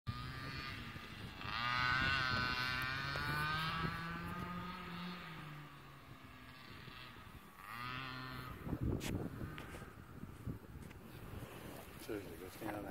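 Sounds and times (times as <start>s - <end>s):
dirt bike engine revving: 0.1s - 12.1s.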